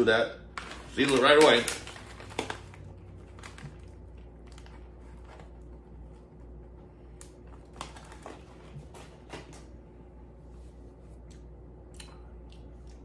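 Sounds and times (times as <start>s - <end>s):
faint steady hum: 0.0s - 13.0s
foil pouch crinkling: 0.5s - 5.9s, 7.3s - 8.7s.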